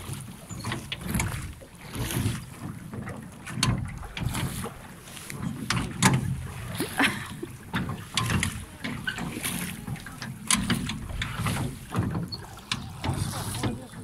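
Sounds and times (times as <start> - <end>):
oars knocking in oarlocks: 0.0 - 14.0
oars splashing in water: 0.0 - 14.0.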